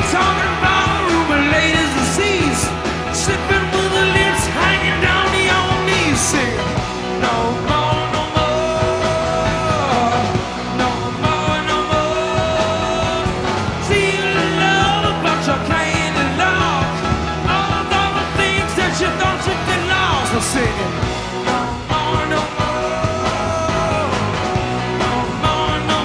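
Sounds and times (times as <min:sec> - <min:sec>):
rock band playing: 0:00.0 - 0:26.0.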